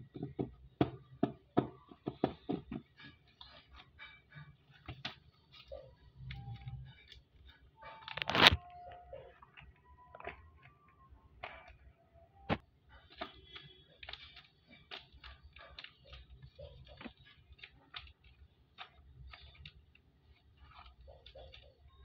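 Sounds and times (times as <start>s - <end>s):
paper crinkles: 4.7s - 10.8s, 12.5s - 22.0s.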